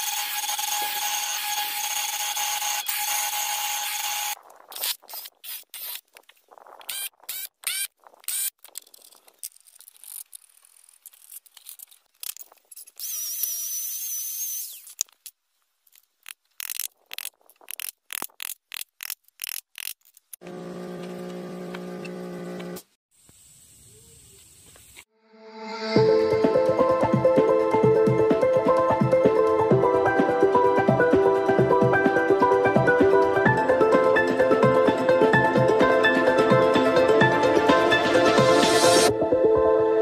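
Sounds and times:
power tool high wavering whine: 0:00.0 - 0:04.4
woodworking power tool running: 0:20.4 - 0:22.8.

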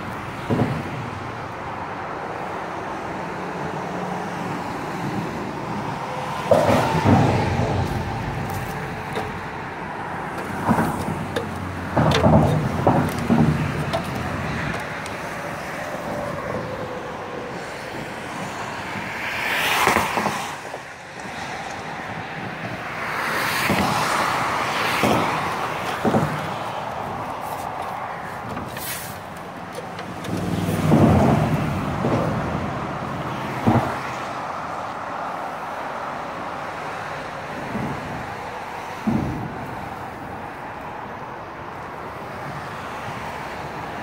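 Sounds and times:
cars passing on bridge: 0:00.0 - 0:44.0
tyres knocking on expansion joint: 0:06.4 - 0:15.4.

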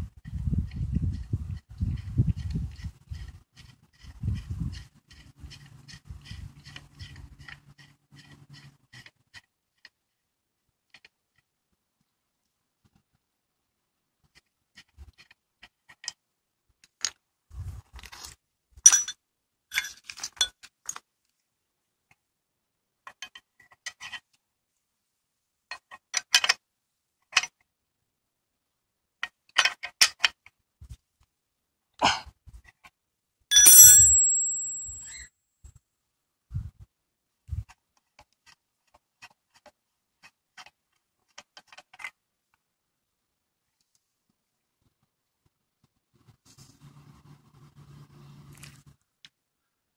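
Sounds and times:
metal part clicking: 0:33.5 - 0:35.2
metallic clinks: 0:33.5 - 0:35.2.

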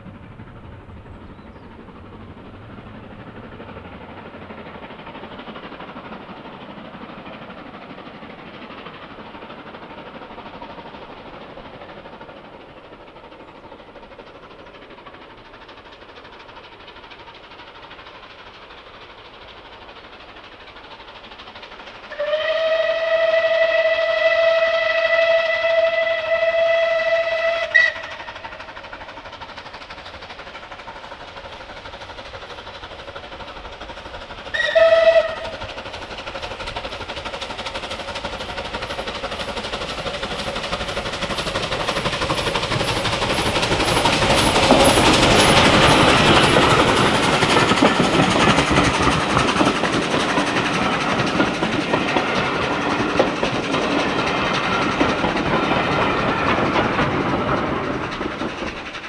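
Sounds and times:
steam train passing: 0:00.0 - 0:59.0
steam locomotive whistle: 0:22.1 - 0:28.4, 0:34.5 - 0:35.8.

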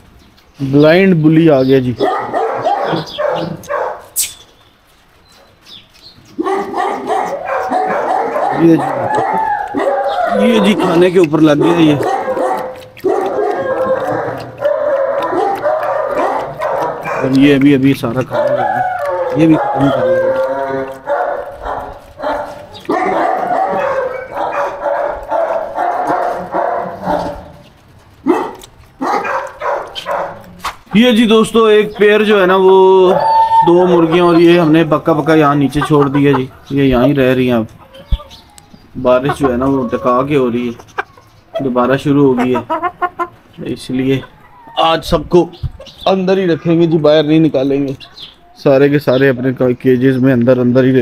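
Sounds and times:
dog barking: 0:02.0 - 0:04.2, 0:06.4 - 0:10.9, 0:11.5 - 0:17.5, 0:18.2 - 0:27.6, 0:28.2 - 0:30.5
puppy yelping and whining: 0:06.4 - 0:11.0, 0:11.6 - 0:17.4, 0:18.2 - 0:27.6, 0:33.0 - 0:34.8, 0:44.2 - 0:45.0.

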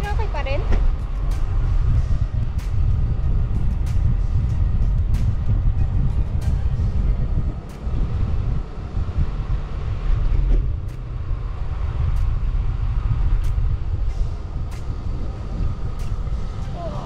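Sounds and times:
wind buffeting microphone: 0:00.0 - 0:17.0
light sharp ticks: 0:10.8 - 0:11.1, 0:12.1 - 0:12.4, 0:13.4 - 0:15.1.

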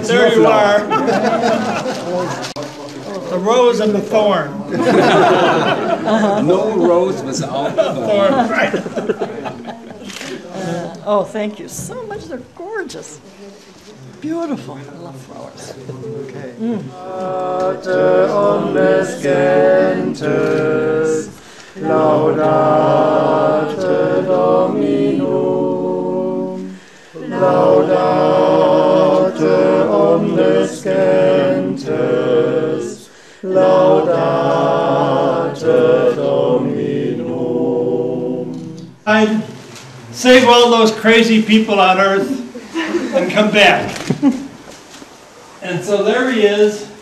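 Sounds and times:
group singing unaccompanied: 0:00.0 - 0:02.6, 0:04.7 - 0:11.0, 0:16.6 - 0:40.9.

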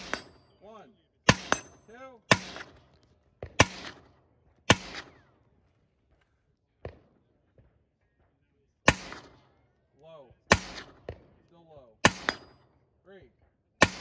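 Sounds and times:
rifle shots: 0:00.0 - 0:00.5, 0:01.3 - 0:05.4, 0:08.8 - 0:09.5, 0:10.5 - 0:11.4, 0:12.0 - 0:12.7, 0:13.8 - 0:14.0.

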